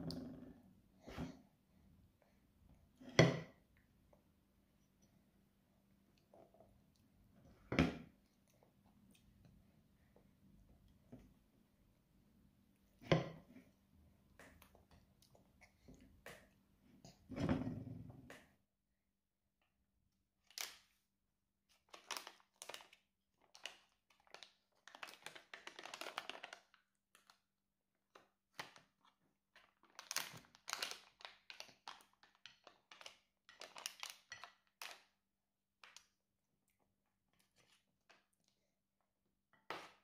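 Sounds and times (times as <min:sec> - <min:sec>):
plastic pouch crinkling: 0:21.9 - 0:26.8, 0:29.6 - 0:34.9.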